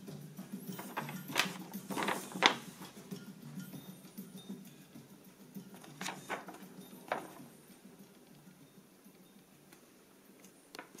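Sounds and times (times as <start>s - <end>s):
paper crackling: 0.8s - 3.0s, 5.8s - 7.5s.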